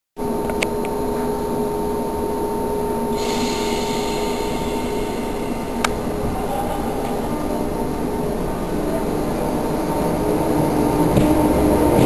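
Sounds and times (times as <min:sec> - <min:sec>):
train electrical humming: 0:00.2 - 0:12.0
hiss: 0:03.1 - 0:07.6
low rumble: 0:03.2 - 0:12.0.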